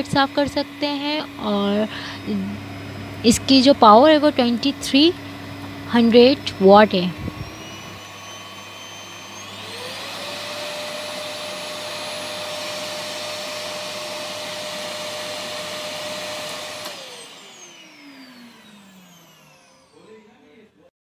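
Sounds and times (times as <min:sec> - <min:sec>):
vacuum cleaner running: 0:00.0 - 0:20.6.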